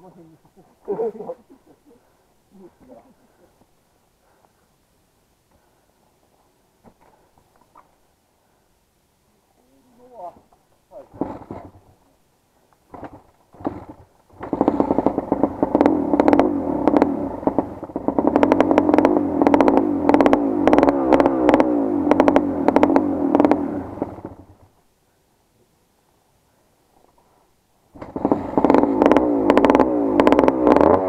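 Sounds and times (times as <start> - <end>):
motorcycle engine revving: 12.9 - 24.6, 28.0 - 31.0.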